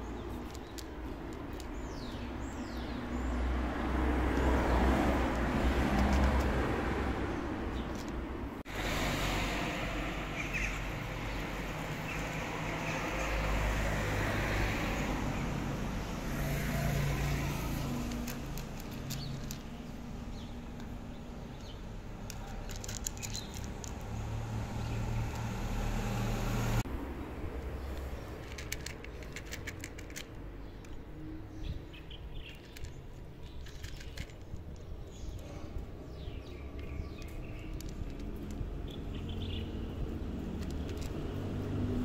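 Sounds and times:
cat crunching dry kibble: 17.7 - 19.8, 22.2 - 24.0, 28.3 - 30.4, 32.5 - 35.5.

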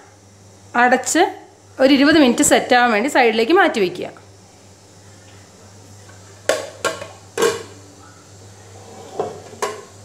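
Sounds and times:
dishes clinking on stone countertop: 6.5 - 7.8, 8.9 - 10.0.

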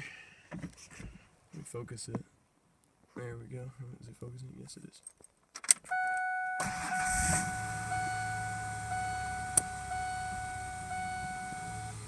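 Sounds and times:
dashboard warning chime: 5.9 - 12.0
truck engine starting and idling: 6.6 - 12.0.

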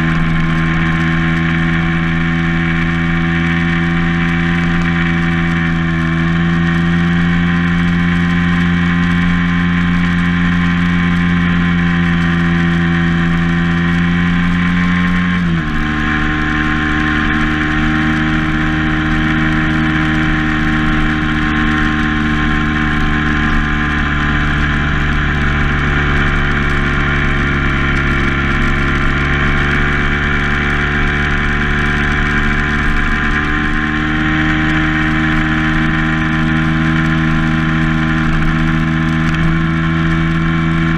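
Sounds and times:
vehicle engine running: 0.0 - 40.9.

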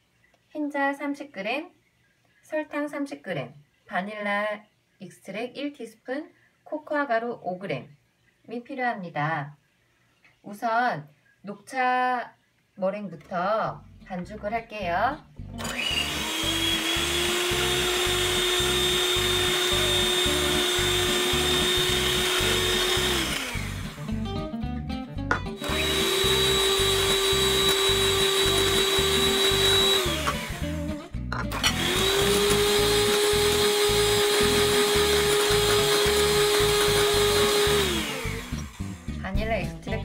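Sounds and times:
electric hand mixer whine: 15.6 - 24.2, 25.6 - 39.2
background music with beat: 24.0 - 25.6.

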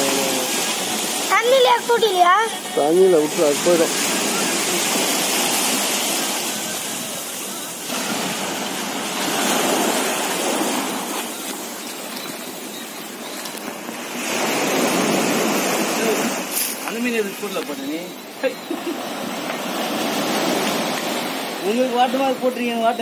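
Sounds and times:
sea surf washing on beach: 0.0 - 23.0.

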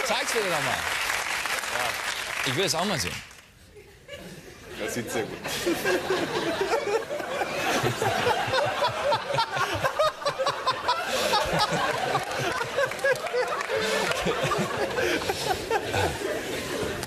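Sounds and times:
studio audience laughing: 3.8 - 17.0
host laughing: 5.7 - 16.6.

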